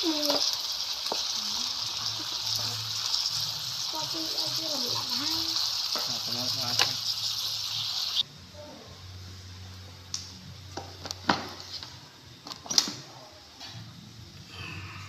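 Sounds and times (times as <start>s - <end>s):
food sizzling in a pan: 0.0s - 8.3s.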